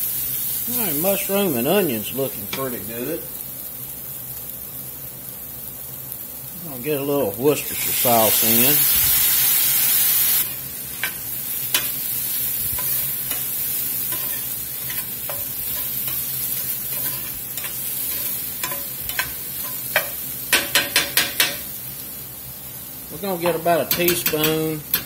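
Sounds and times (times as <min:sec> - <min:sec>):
vegetables sizzling in skillet: 0:00.0 - 0:25.0
loud hiss of sauce: 0:07.4 - 0:14.0
spatula scraping pan: 0:10.4 - 0:21.7
utensil knocking on skillet: 0:14.1 - 0:21.7, 0:23.4 - 0:25.0.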